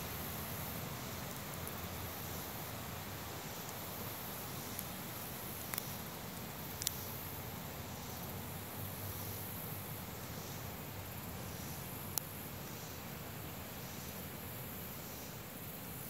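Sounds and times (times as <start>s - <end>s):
faint insect chirping: 0.0s - 16.0s
steady hiss: 0.0s - 16.0s.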